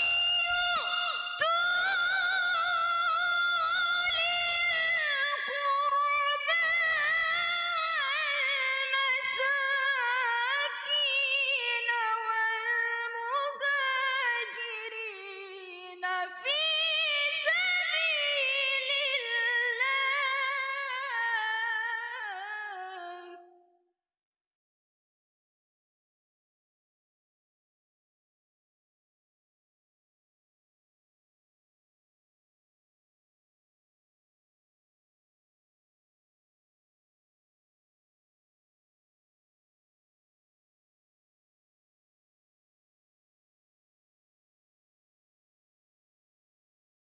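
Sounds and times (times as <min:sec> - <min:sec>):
girl singing recitation into microphone: 0:00.0 - 0:23.4.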